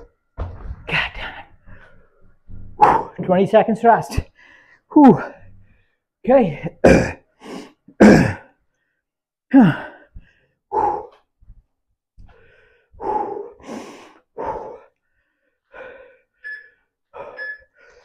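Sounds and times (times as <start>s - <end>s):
man breathing hard and sighing: 7.4s - 11.2s, 12.3s - 16.4s.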